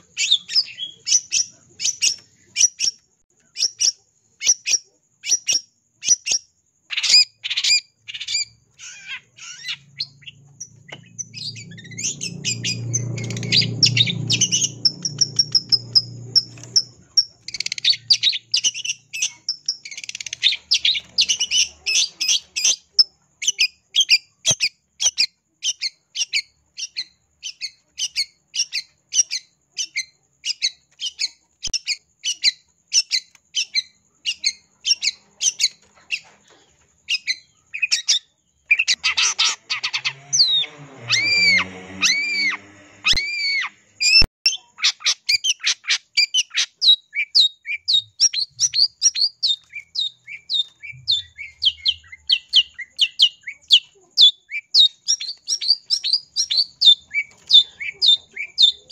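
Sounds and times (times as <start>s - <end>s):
shrike calling: 0.0s - 23.0s, 37.1s - 58.9s.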